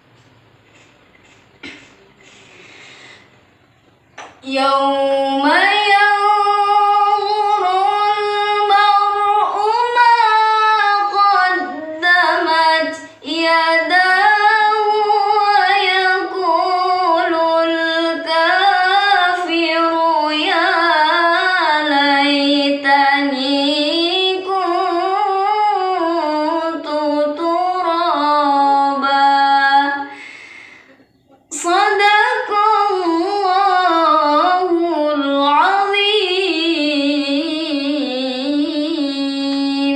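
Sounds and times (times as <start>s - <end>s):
woman reciting melodically: 0.6s - 39.9s.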